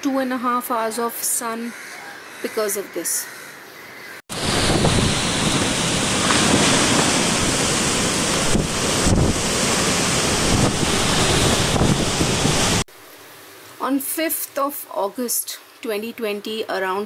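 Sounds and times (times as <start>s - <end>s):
strong gusting wind: 4.3s - 12.9s
wind buffeting microphone: 4.3s - 12.9s
torrential rain: 4.3s - 16.9s.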